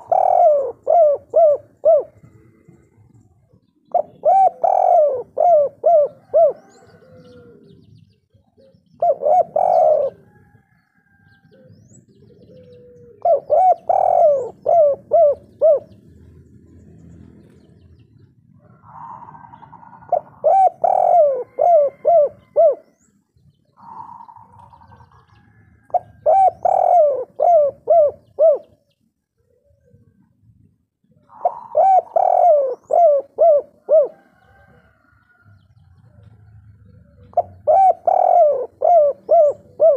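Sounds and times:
dove cooing: 0.0s - 16.6s, 18.4s - 30.4s, 31.0s - 39.9s.

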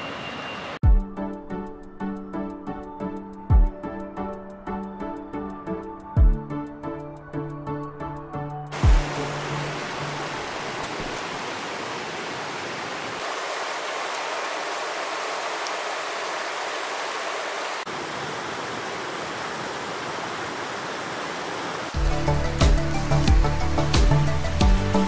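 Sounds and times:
creek rushing over boulders: 8.8s - 24.6s.

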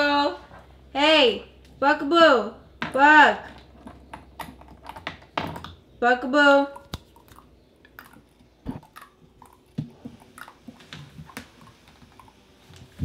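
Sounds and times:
puppy chewing: 6.8s - 13.0s.

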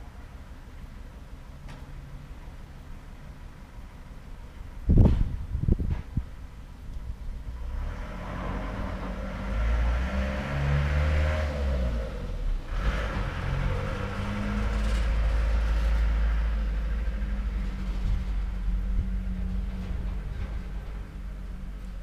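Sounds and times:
motor traffic passing: 7.2s - 22.0s.

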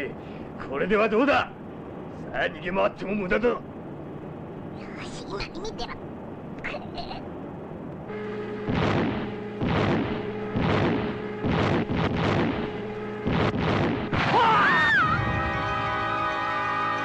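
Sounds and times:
steady low hum: 0.0s - 17.0s
cartoon bomb explosions: 8.6s - 15.6s.

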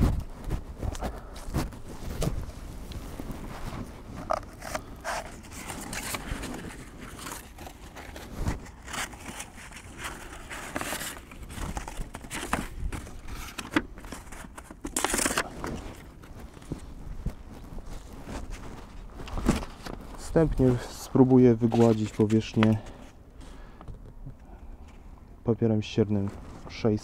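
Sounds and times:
rustling and crinkling: 0.0s - 27.0s.

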